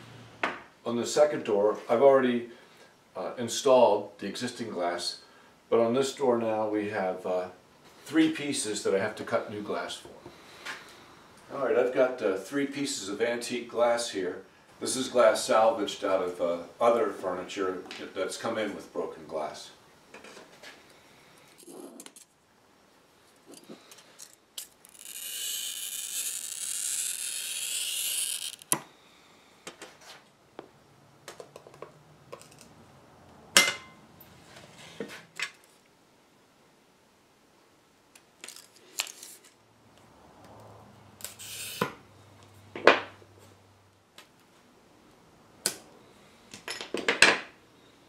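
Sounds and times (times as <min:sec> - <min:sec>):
glass cutter scoring glass: 0:24.6 - 0:28.8, 0:41.2 - 0:42.0.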